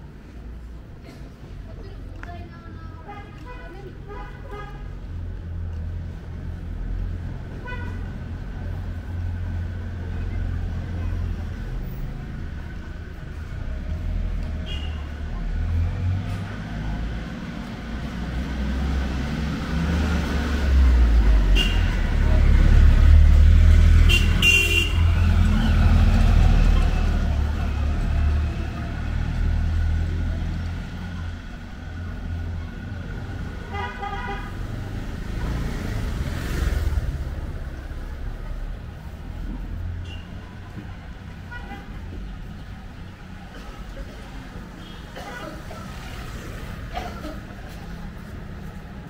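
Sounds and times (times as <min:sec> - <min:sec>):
vehicle engine rumbling past: 0:06.0 - 0:33.7
vehicle horn short toots: 0:24.1 - 0:25.0.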